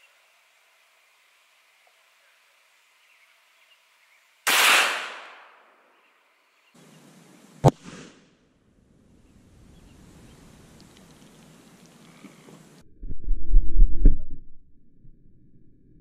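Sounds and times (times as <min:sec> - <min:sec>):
pistol shot echoing: 0:04.5 - 0:05.6
sharp gunshot crack: 0:04.5 - 0:05.6.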